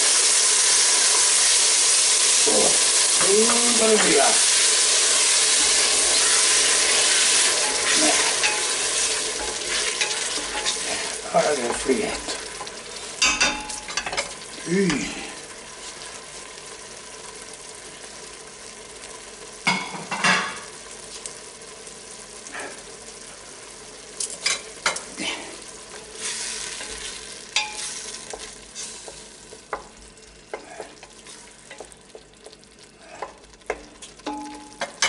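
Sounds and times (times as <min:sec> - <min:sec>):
vegetables sizzling in oil: 0:00.0 - 0:35.0
spatula scraping and tapping pot: 0:26.8 - 0:35.0.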